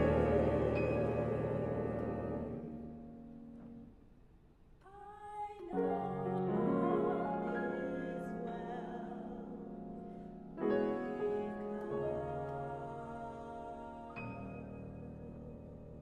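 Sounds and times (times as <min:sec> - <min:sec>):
chorus singing: 0:00.0 - 0:03.0, 0:05.6 - 0:09.7, 0:10.6 - 0:16.0
grand piano: 0:00.0 - 0:16.0.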